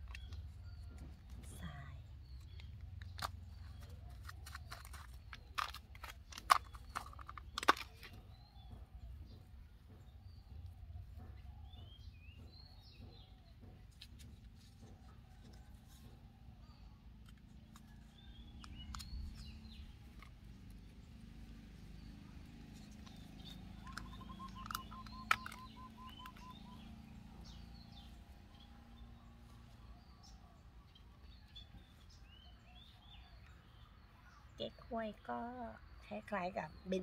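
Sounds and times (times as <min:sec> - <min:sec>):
low outdoor rumble: 0:00.0 - 0:32.2
small birds chirping: 0:00.0 - 0:37.0
sharp clicks: 0:22.9 - 0:26.8.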